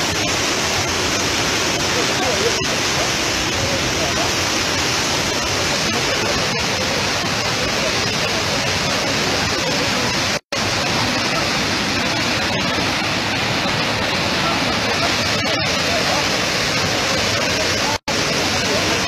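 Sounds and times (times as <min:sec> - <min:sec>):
floodwater rushing over waterfall: 0:00.0 - 0:19.0.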